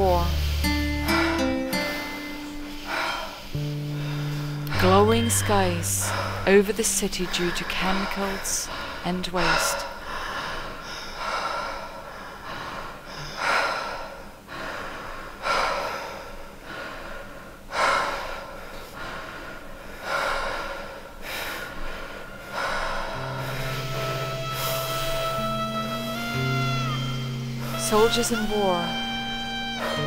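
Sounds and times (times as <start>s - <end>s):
steady held tone: 0.0s - 8.7s, 22.2s - 30.0s
heavy breathing: 0.0s - 30.0s.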